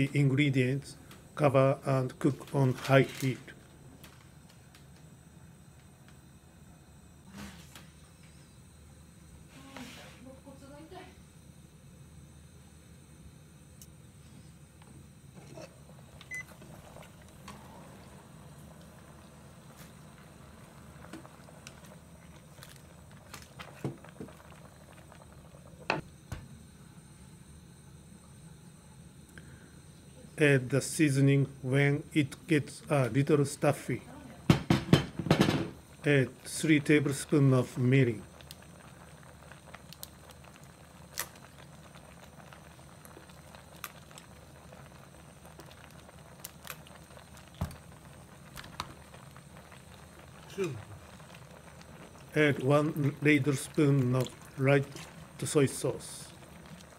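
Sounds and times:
low steady hiss: 0.0s - 34.5s, 35.7s - 56.9s
faint low hum of burner: 0.0s - 56.9s
small ticks and pops: 38.4s - 38.7s, 39.6s - 49.9s.

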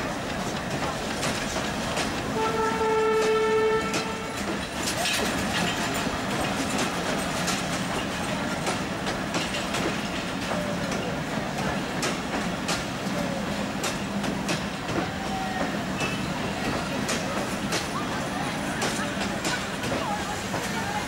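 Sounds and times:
train wheels clacking on rails: 0.0s - 21.0s
train horn blast: 2.3s - 4.6s.

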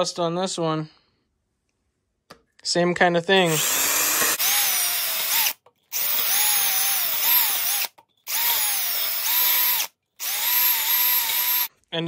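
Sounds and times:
cordless drill whine: 3.4s - 11.7s.

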